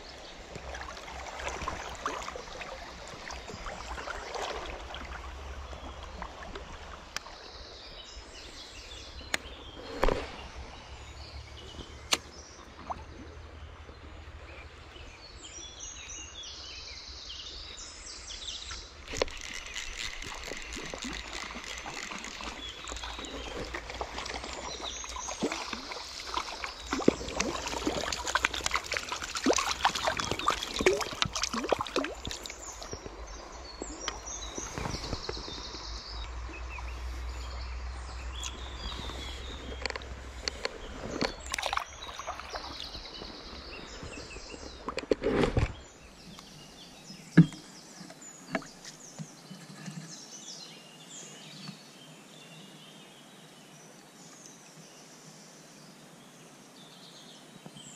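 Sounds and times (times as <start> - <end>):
water splashing: 0.0 - 15.0, 18.6 - 48.9
stream water running: 0.0 - 57.9
clicking handling noises: 19.1 - 23.7.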